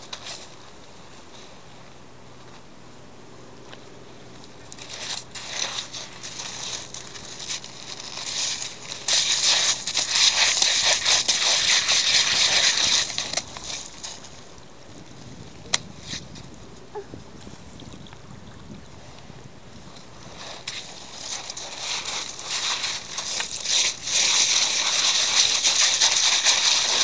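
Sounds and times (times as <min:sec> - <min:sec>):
dog digging in gravel: 0:04.7 - 0:14.5, 0:20.2 - 0:27.0.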